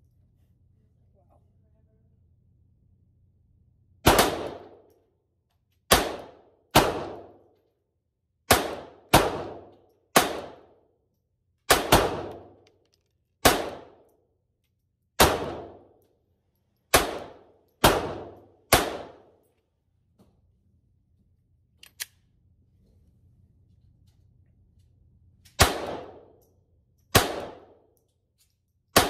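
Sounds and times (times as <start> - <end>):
pistol shots: 4.0 - 4.9, 5.9 - 7.5, 8.4 - 10.8, 11.7 - 12.6, 13.4 - 14.1, 15.2 - 16.0, 16.9 - 19.4, 25.6 - 26.4, 27.1 - 27.9.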